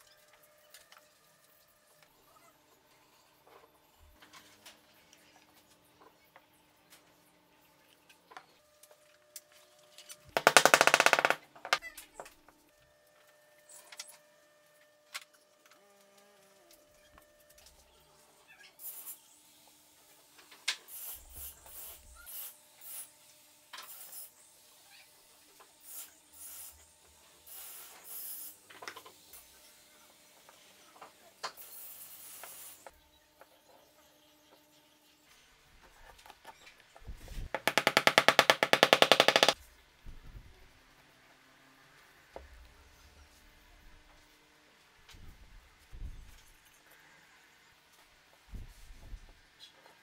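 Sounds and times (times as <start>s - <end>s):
sharp metal clicks: 10.4s - 11.8s, 37.6s - 39.6s.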